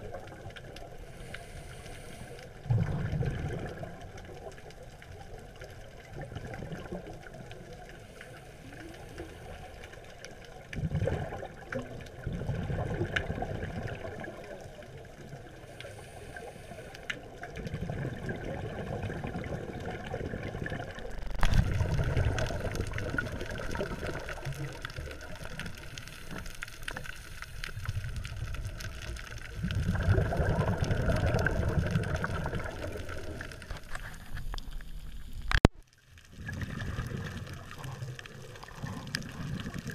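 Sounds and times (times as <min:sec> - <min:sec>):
gurgling exhaled bubbles: 0:00.0 - 0:35.6, 0:36.2 - 0:39.9
underwater background: 0:00.0 - 0:39.9
diver breathing through regulator: 0:01.0 - 0:02.6, 0:15.7 - 0:17.1.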